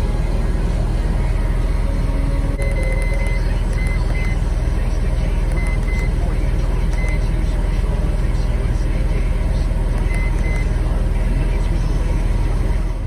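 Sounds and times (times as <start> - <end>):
steady low rumble: 0.0 - 13.0
high electronic beeps: 2.6 - 4.4, 5.5 - 6.2, 6.9 - 7.3, 10.0 - 10.8.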